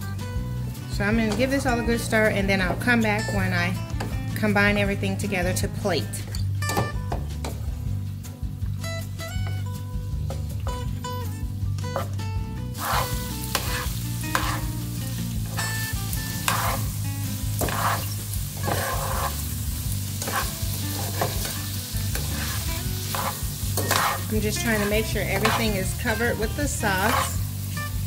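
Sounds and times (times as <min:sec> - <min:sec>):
food sizzling in frying pan: 0:09.4 - 0:28.0
utensil stirring food: 0:12.8 - 0:27.9.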